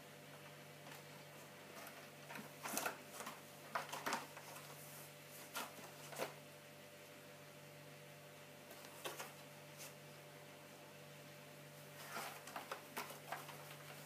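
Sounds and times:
faint steady hum: 0:00.0 - 0:14.0
cat scratching cardboard: 0:11.9 - 0:14.0.

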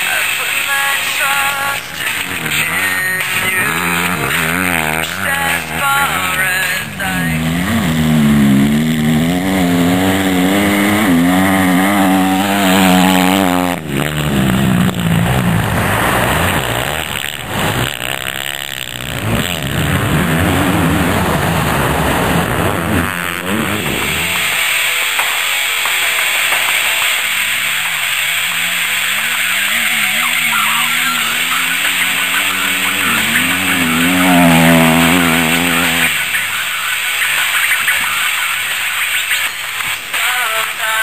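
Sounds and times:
dirt bike engine revving: 0:00.0 - 0:40.2.

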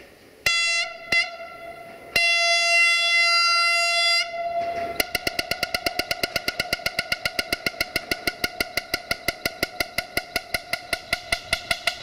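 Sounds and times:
train horn blasts: 0:00.4 - 0:06.1.

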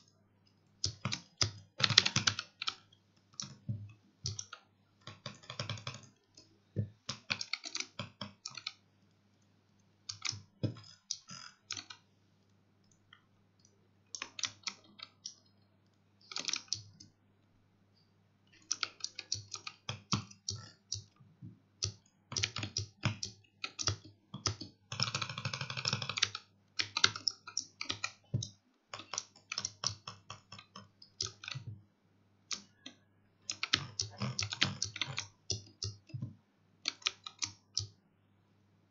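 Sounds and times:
keyboard keys clicking: 0:03.4 - 0:08.8, 0:16.2 - 0:17.1, 0:18.6 - 0:21.2, 0:21.8 - 0:31.8, 0:32.5 - 0:37.9.

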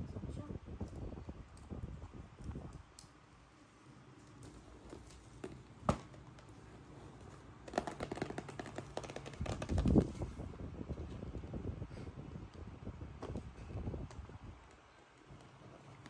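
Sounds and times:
cardboard rustling: 0:04.2 - 0:10.5.

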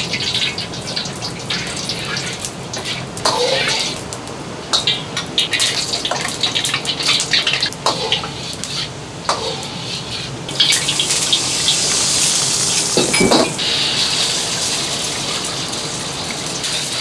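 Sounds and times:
oil sizzling: 0:00.0 - 0:17.0
burner hiss: 0:06.7 - 0:17.0.

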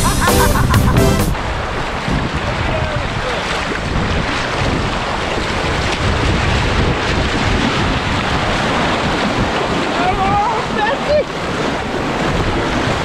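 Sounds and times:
rushing river water: 0:00.0 - 0:13.0
paddle strokes in water: 0:01.3 - 0:13.0
wind buffeting microphone: 0:01.3 - 0:13.0.

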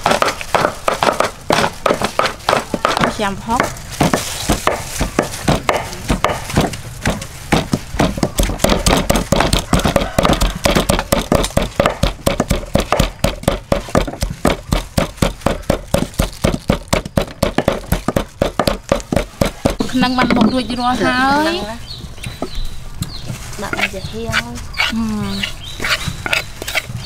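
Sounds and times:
cleaver chopping on wooden block: 0:00.0 - 0:19.8.

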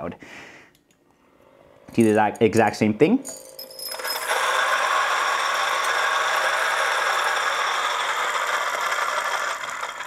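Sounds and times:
coffee grinder grinding: 0:03.4 - 0:10.0.

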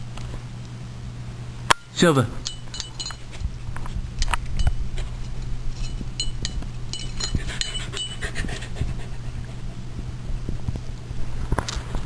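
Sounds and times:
steady low hum: 0:00.0 - 0:12.0
collar tags jingling: 0:02.4 - 0:03.4, 0:05.8 - 0:08.4.

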